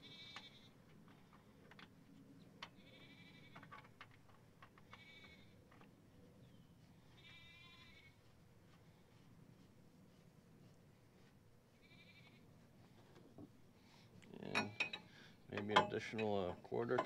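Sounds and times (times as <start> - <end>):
farm animals bleating: 0.0 - 0.8, 2.7 - 3.7, 4.9 - 5.6, 7.1 - 8.2, 11.8 - 12.6.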